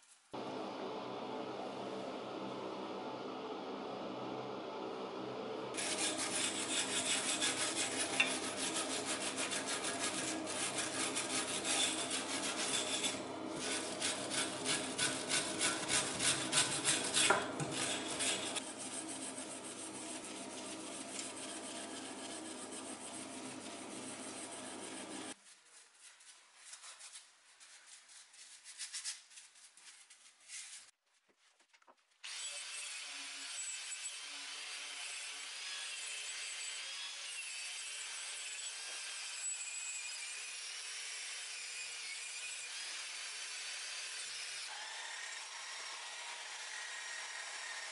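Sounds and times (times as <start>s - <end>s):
paint scraping off metal: 5.8s - 30.9s.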